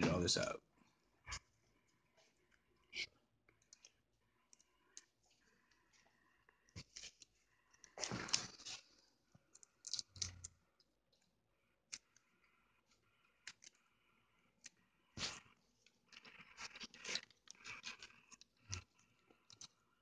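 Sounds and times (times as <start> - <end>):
plastic pieces clicking: 9.5 - 10.5.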